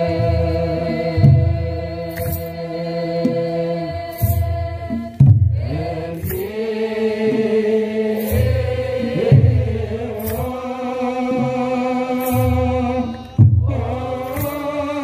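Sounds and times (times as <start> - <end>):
group chanting in unison: 0.0 - 15.0.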